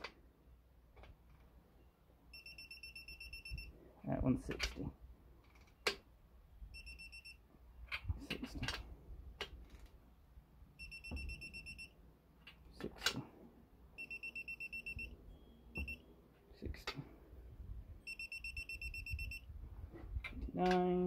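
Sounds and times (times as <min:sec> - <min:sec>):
torque wrench beeping: 0:14.0 - 0:16.0, 0:18.1 - 0:19.4.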